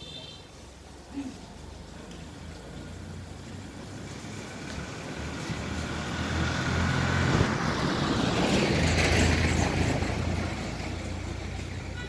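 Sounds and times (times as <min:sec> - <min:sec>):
vehicle engine driving past: 0:02.8 - 0:11.7.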